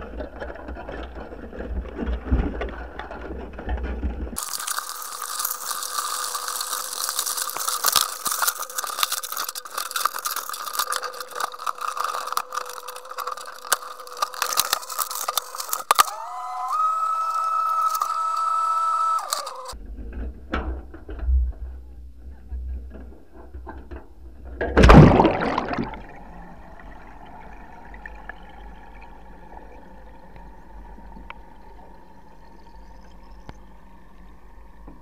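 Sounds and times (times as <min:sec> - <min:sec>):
rapid high clicks and rattles: 0:04.4 - 0:16.2.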